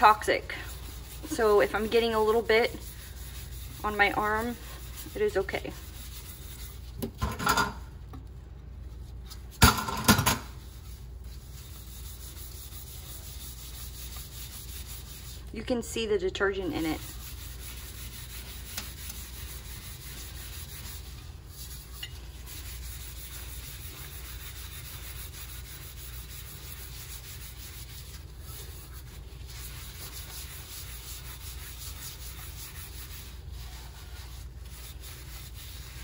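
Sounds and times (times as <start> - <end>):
steel wool scrubbing: 0.0 - 7.6, 10.5 - 36.0.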